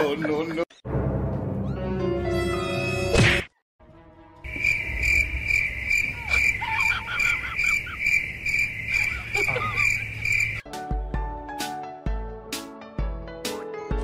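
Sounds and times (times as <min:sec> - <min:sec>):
cricket chirping: 0:04.4 - 0:10.6.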